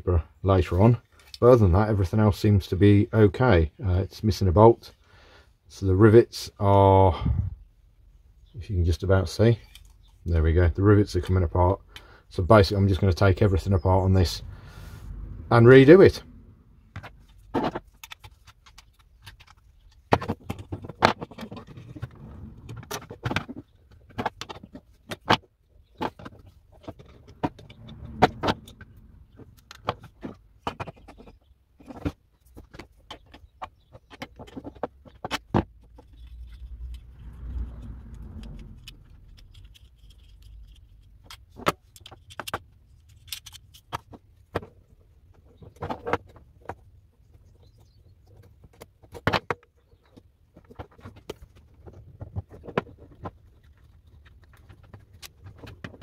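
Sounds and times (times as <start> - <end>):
metal parts clicking and clinking: 37.8 - 44.2.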